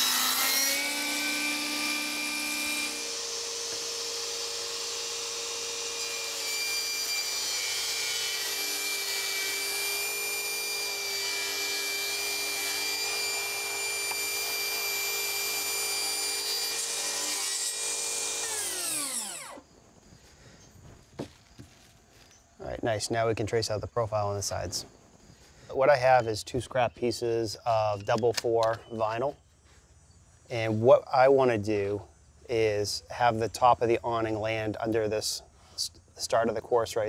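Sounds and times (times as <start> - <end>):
saw blade spinning down: 0.0 - 19.6
saw cutting plastic board: 0.0 - 19.6
table saw motor whine: 0.0 - 19.6.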